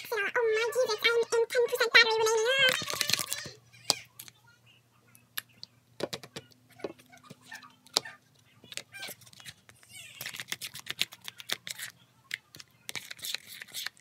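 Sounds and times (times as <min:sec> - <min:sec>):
slime squelching: 0:07.9 - 0:14.0.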